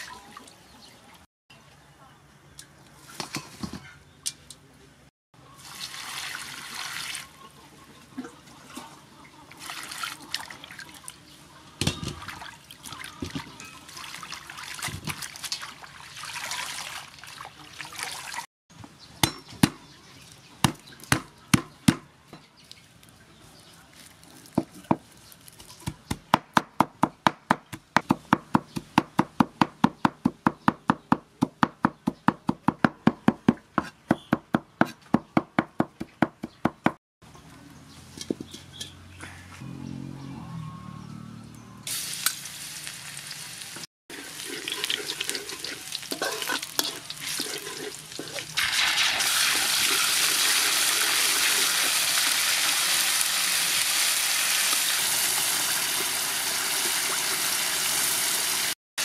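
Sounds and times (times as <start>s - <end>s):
water splashing and pouring: 0.0s - 0.6s, 5.6s - 7.4s, 9.6s - 11.2s, 12.1s - 18.5s, 41.9s - 58.8s.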